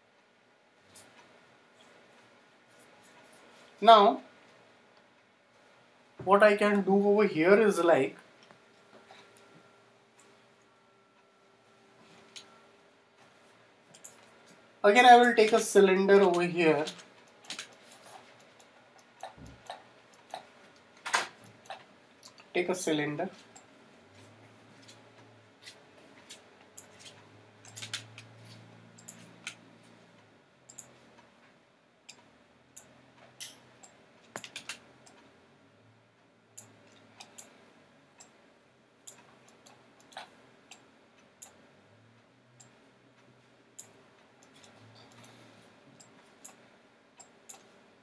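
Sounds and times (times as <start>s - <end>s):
faint low hum: 0.0s - 48.0s
computer mouse clicking: 13.9s - 14.4s, 16.3s - 22.5s, 26.3s - 29.6s, 32.1s - 35.3s, 36.6s - 37.6s, 43.8s - 45.4s, 46.0s - 46.6s, 47.2s - 47.8s.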